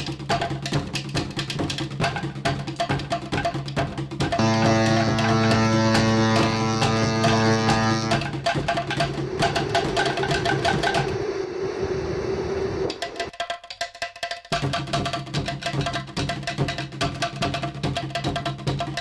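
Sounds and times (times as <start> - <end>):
background music with percussion beat: 0.0 - 11.2, 12.9 - 19.0
ship horn long low blast: 4.4 - 8.3.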